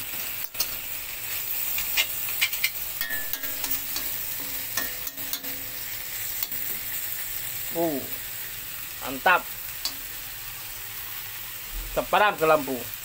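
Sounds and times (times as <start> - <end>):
greens sizzling in a pan: 0.0 - 13.0
spatula scraping a pan: 0.6 - 6.9.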